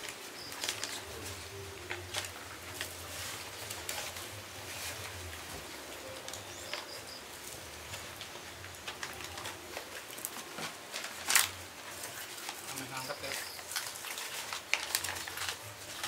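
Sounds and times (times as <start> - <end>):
food wrappings rustling: 0.0 - 16.0
bird chirping: 5.6 - 7.7.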